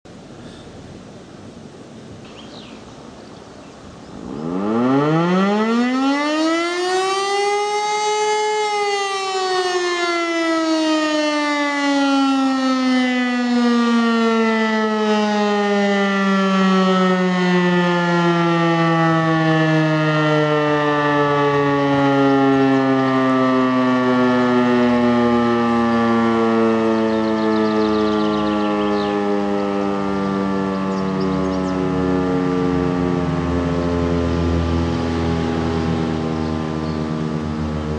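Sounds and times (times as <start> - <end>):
civil defence siren winding: 4.3 - 37.9.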